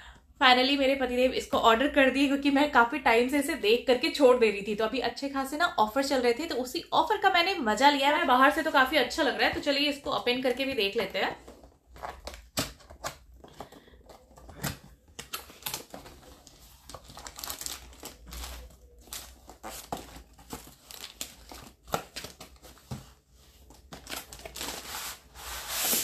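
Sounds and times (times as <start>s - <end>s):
cardboard crinkling and tearing: 11.4s - 26.0s.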